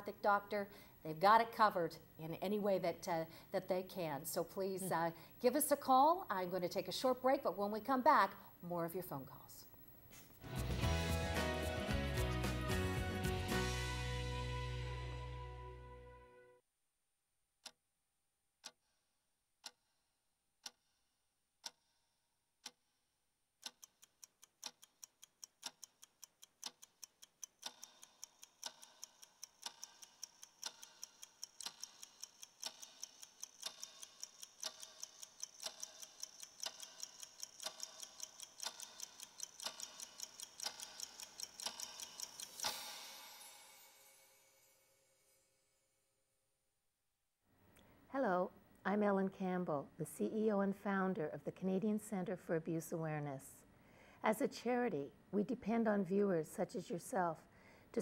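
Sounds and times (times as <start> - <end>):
clock ticking: 19.6 - 19.9, 21.6 - 21.9, 22.6 - 22.8, 23.6 - 43.5.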